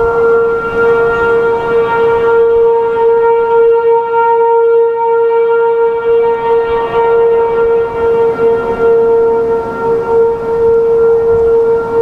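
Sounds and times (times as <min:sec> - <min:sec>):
distant warning siren steady tone: 0:00.0 - 0:12.0
wind noise: 0:00.0 - 0:12.0.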